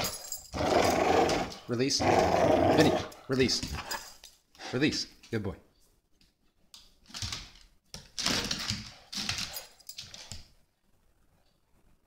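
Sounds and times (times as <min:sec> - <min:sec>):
dog play noises: 0:00.0 - 0:04.7, 0:07.1 - 0:10.6.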